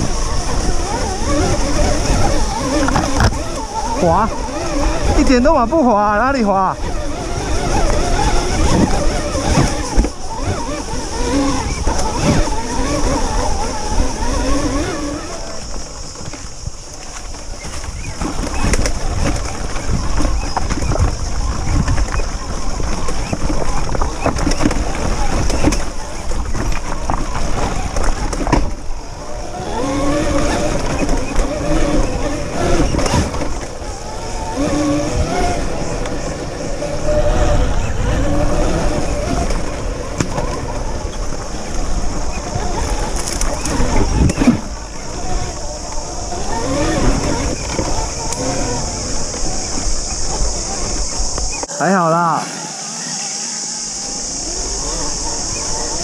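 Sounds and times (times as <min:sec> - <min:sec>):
wind and vibration rumble: 0:00.0 - 0:52.0, 0:52.6 - 0:56.0
faint wavering whine: 0:00.0 - 0:56.0
steady high hiss: 0:28.8 - 0:56.0.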